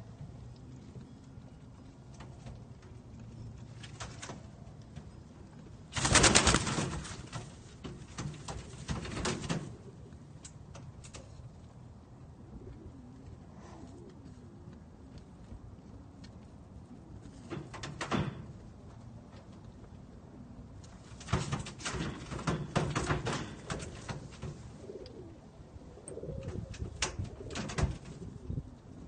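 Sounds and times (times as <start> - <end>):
clatter in cage: 3.7 - 4.5, 5.9 - 9.9, 17.3 - 18.5, 20.9 - 24.7, 26.5 - 28.2
pigeons cooing: 8.9 - 10.4, 12.0 - 14.8, 22.4 - 29.0.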